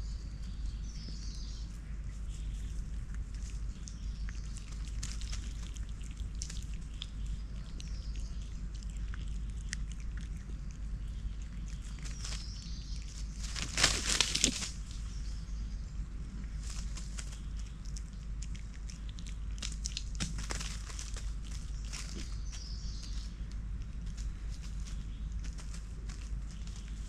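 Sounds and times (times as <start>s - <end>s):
rustling dry leaves: 1.8s - 7.1s, 11.6s - 15.2s, 16.5s - 18.0s, 19.6s - 27.0s.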